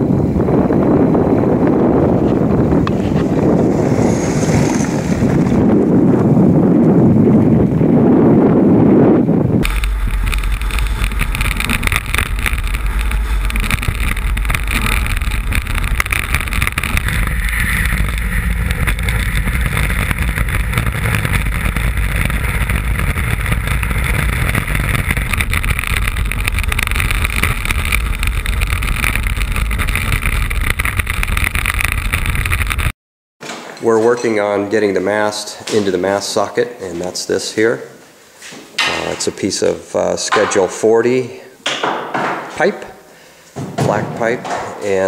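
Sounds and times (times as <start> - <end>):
wind buffeting microphone: 0.0 - 32.9
runners rumbling on ice: 0.5 - 32.9.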